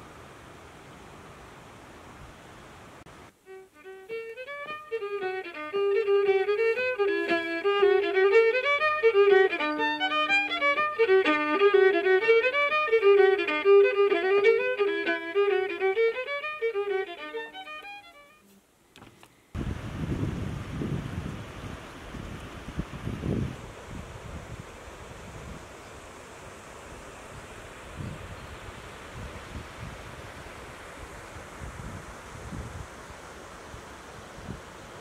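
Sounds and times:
fiddle playing: 0:03.3 - 0:18.6.

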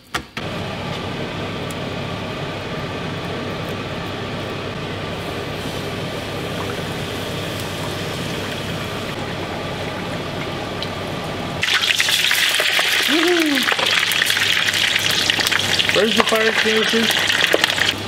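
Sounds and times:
chips frying crackling sizzle: 0:00.4 - 0:18.0
fish deep-frying in oil: 0:04.5 - 0:18.0.

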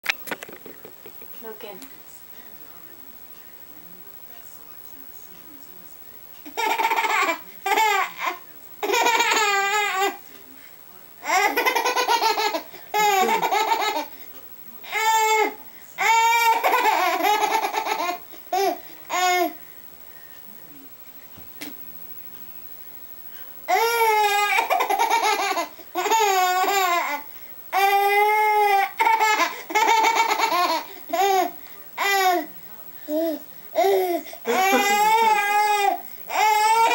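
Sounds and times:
baby laughing: 0:06.5 - 0:10.2, 0:11.2 - 0:14.1, 0:16.0 - 0:19.5, 0:23.7 - 0:27.2, 0:27.8 - 0:32.4, 0:33.1 - 0:35.8
baby laughing and squealing: 0:33.8 - 0:36.9.

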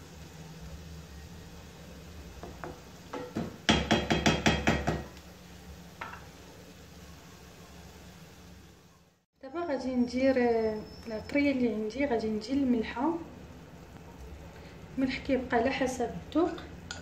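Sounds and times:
meat sizzling in frying pan: 0:00.0 - 0:08.9
spatula tapping frying pan: 0:02.4 - 0:05.2, 0:06.0 - 0:06.3.

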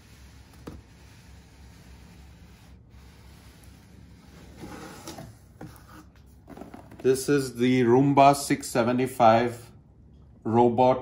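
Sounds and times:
cardboard sliding and scraping: 0:00.0 - 0:07.2.

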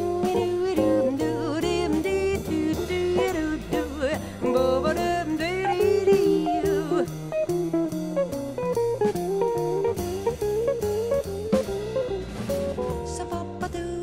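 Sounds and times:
drum kit with cymbals: 0:00.0 - 0:14.0
walking double bass: 0:00.0 - 0:14.0
guitar solo line: 0:02.7 - 0:13.4.

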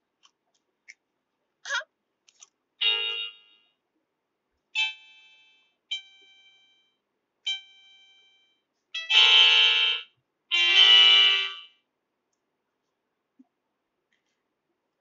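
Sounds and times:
toy electronic keyboard notes: 0:02.8 - 0:03.7, 0:04.8 - 0:06.8, 0:07.4 - 0:11.8.

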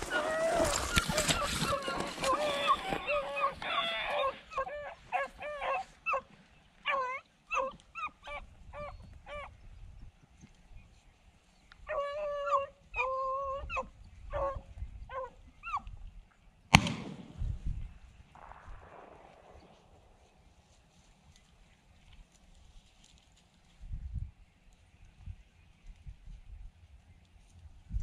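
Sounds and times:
dogs baying and yelping: 0:00.0 - 0:09.5, 0:11.9 - 0:15.9.

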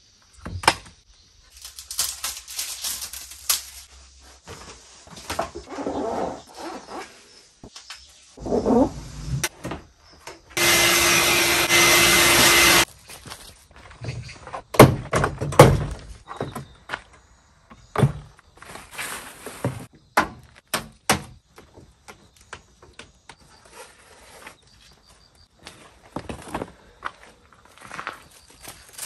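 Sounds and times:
steady whirring: 0:10.6 - 0:12.8.

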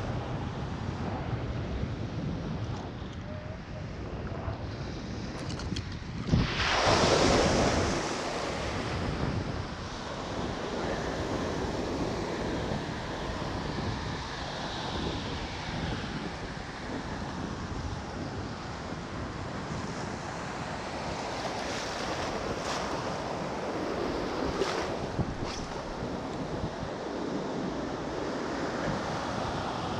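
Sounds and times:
wind buffeting microphone: 0:00.0 - 0:29.9
ocean surf breaking: 0:06.3 - 0:13.6, 0:20.6 - 0:29.9.

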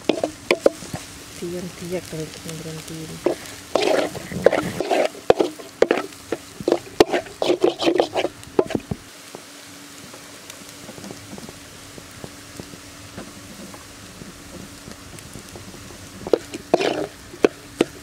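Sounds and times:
spatula scraping metal pan: 0:00.0 - 0:01.0, 0:03.2 - 0:08.8, 0:16.3 - 0:18.0.

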